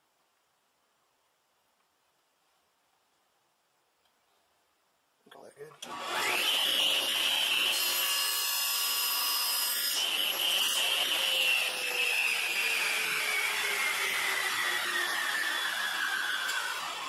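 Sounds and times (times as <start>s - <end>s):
saw cutting wood: 5.8s - 17.0s
table saw whining: 5.8s - 17.0s.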